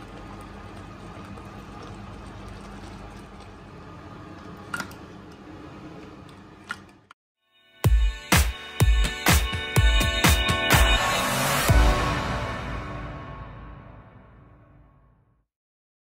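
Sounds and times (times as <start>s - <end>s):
electronic music with beat: 7.8s - 12.7s.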